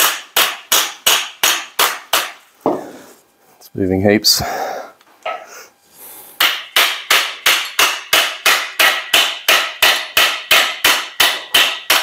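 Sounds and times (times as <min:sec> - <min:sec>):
hammer striking metal: 0:00.0 - 0:02.8, 0:06.4 - 0:12.0.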